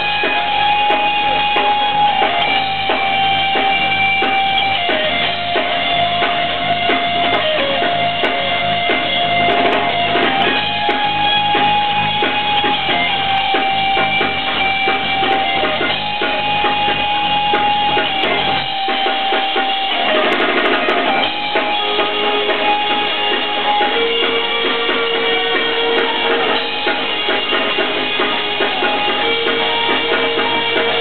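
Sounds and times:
bass guitar: 0.0s - 31.0s
drum kit: 0.0s - 31.0s
electric guitar: 0.0s - 31.0s
keyboard: 0.0s - 31.0s.

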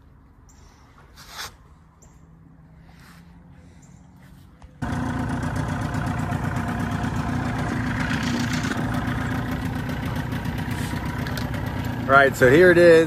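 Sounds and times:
outboard motor running: 4.8s - 13.0s.

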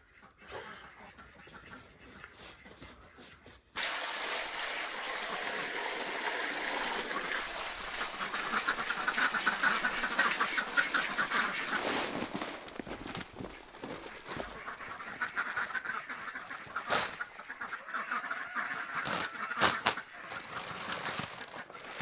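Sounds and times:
ducks quacking: 0.0s - 3.6s, 5.0s - 22.0s
water splashing into a pan: 3.8s - 11.8s.

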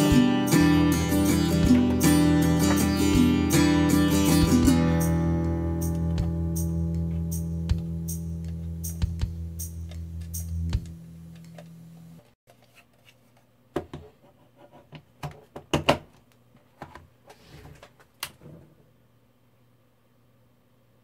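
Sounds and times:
background guitar music: 0.0s - 12.2s.

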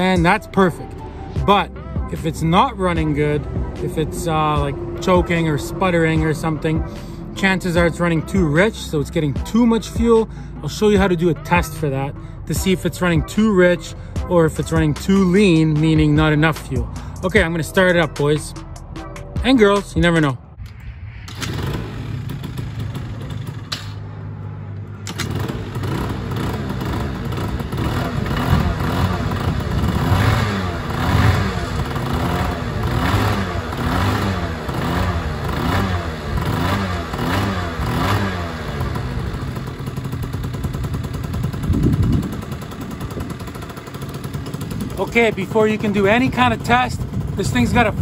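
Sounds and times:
scooter engine revving: 0.0s - 9.2s, 21.3s - 48.0s.

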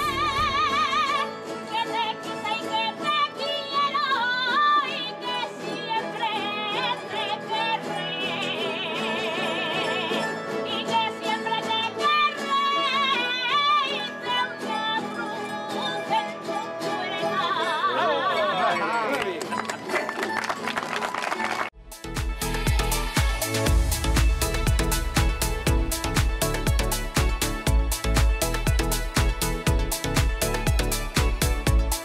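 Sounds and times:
folk singing with strong vibrato: 0.0s - 18.9s
instrumental accompaniment: 21.8s - 32.0s.

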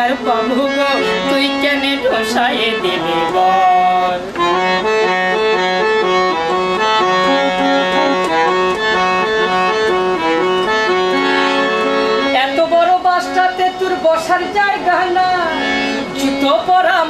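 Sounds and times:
harmonium melody: 0.0s - 17.0s.

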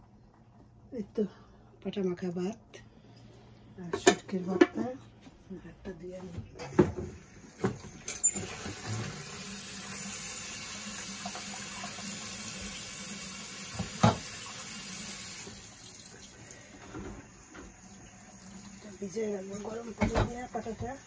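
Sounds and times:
tap running into steel sink: 13.7s - 14.4s
dishes knocking: 13.8s - 14.3s.

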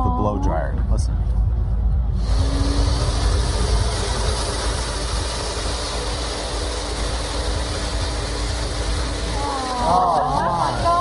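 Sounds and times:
blow dryer running: 2.1s - 11.0s.

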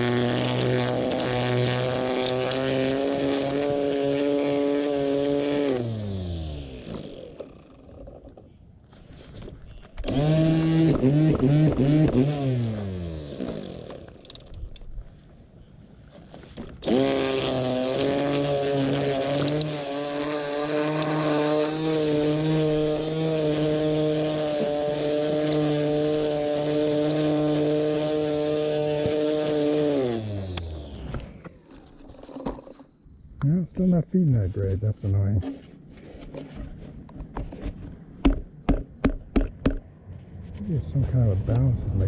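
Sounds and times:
electric string trimmer motor: 0.0s - 8.4s, 10.0s - 15.0s, 16.3s - 32.8s.

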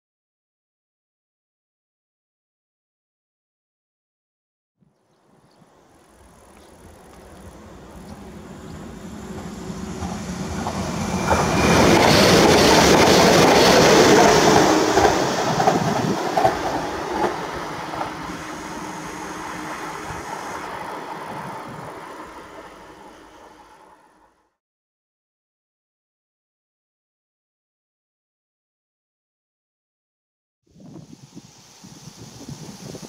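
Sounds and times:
train wheels clattering on rails: 6.4s - 22.7s.

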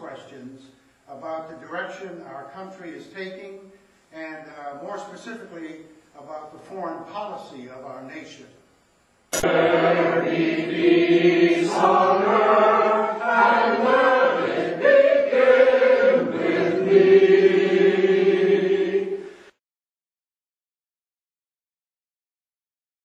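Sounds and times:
group singing held notes: 9.4s - 19.5s.

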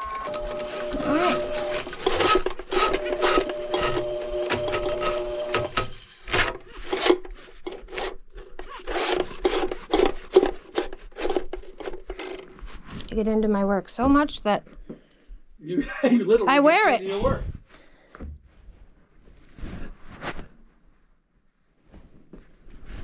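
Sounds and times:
scrubbing pipe fitting by hand: 5.7s - 13.0s.

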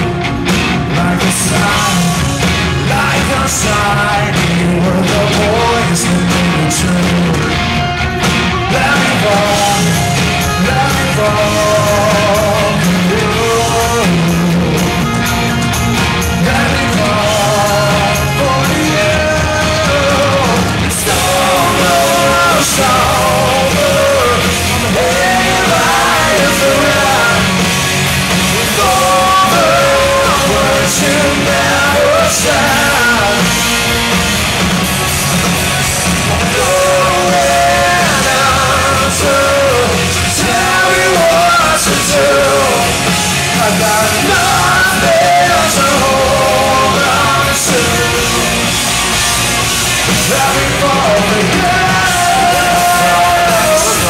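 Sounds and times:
live rock band playing loudly: 0.0s - 54.0s
wavering lead guitar line: 0.0s - 54.0s.

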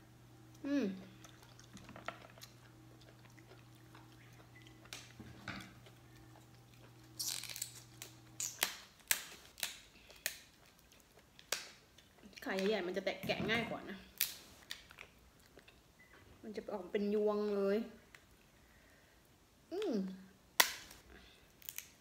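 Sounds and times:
eating sounds: 0.5s - 8.7s
lobster shell cracking: 7.2s - 10.8s.

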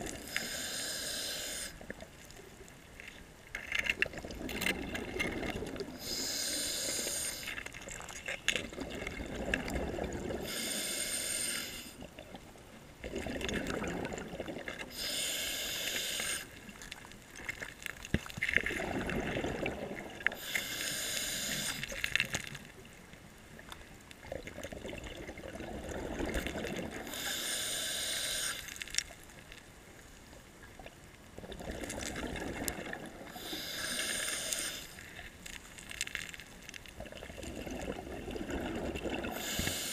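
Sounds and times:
diver breathing through regulator: 0.2s - 1.8s, 5.9s - 7.6s, 10.3s - 12.0s, 14.9s - 16.6s, 20.3s - 22.0s, 27.0s - 28.8s, 33.3s - 35.1s, 39.3s - 39.9s.

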